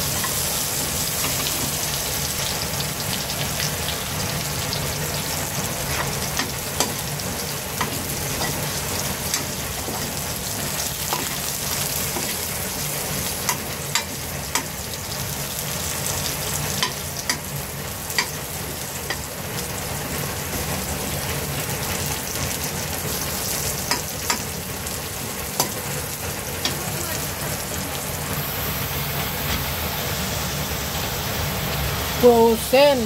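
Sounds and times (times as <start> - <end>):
garlic and onion sizzling in oil: 0.0 - 33.0
metal spatula clicking on pan: 13.5 - 14.7, 16.8 - 17.5, 18.2 - 18.4, 23.8 - 24.5.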